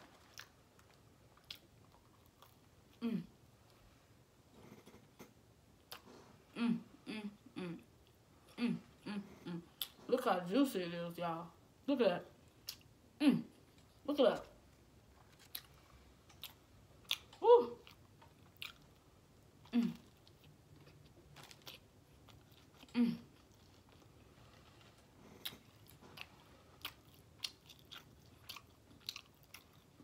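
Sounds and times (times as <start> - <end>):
person chewing: 0.1 - 3.0, 15.1 - 30.0.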